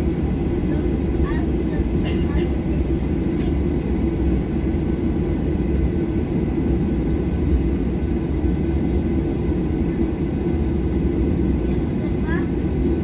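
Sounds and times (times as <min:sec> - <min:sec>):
airplane cabin rumble while taxiing: 0:00.0 - 0:13.0.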